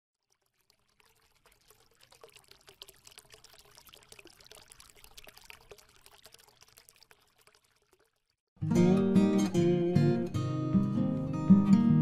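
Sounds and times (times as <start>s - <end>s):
water pouring and trickling: 0.1s - 8.5s.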